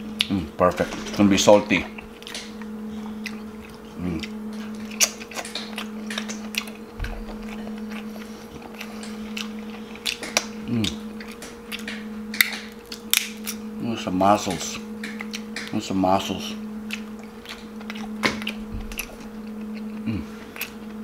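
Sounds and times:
low hum: 0.0s - 21.0s
wet chewing and smacking: 2.0s - 13.7s, 14.7s - 15.8s, 16.8s - 21.0s
person murmuring: 10.7s - 11.0s, 20.0s - 20.4s.

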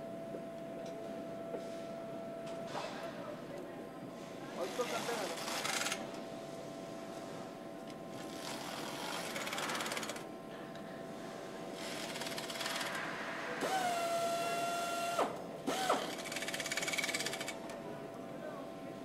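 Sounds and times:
factory power tools and machinery: 4.1s - 6.2s, 6.8s - 17.9s.

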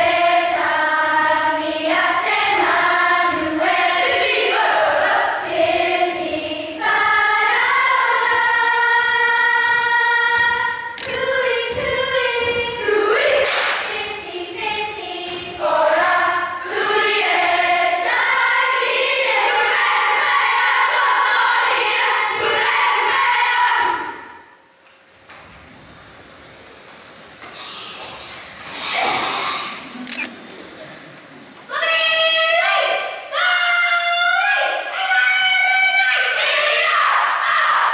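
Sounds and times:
children singing in unison: 0.0s - 24.4s.

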